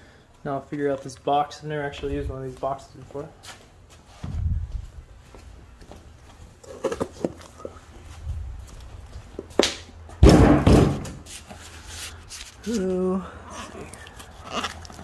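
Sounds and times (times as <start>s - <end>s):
heavy box thud on bench: 10.2s - 11.2s.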